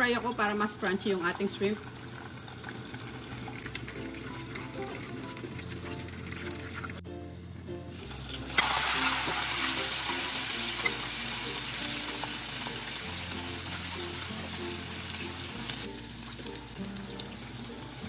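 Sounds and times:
shrimp sizzling in hot oil: 8.0s - 18.0s.

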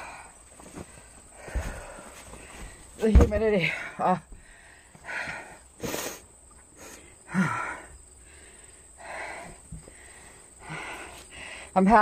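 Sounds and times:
woman breathing heavily: 0.0s - 3.0s, 3.6s - 11.8s
woman sighing: 7.3s - 7.9s.

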